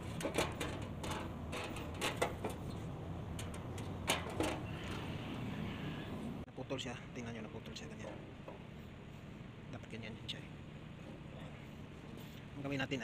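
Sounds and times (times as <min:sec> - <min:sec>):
metal casting knocks and clacks: 0:00.0 - 0:04.7.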